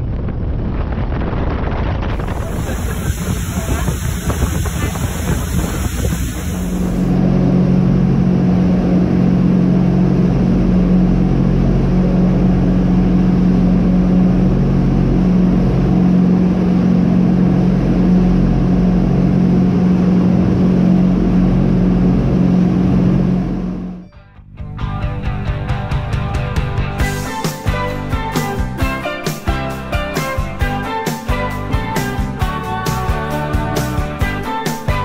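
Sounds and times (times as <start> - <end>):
rush of churning wake: 1.9 - 7.4
boat engines droning: 2.2 - 24.0.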